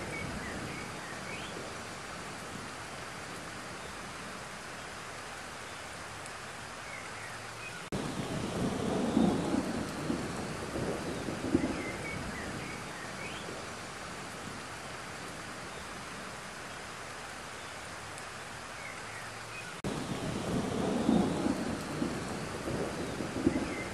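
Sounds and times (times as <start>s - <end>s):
thunder rumble: 0.0s - 2.7s, 7.9s - 14.6s, 19.8s - 23.9s
rain falling on a pond: 0.0s - 23.9s.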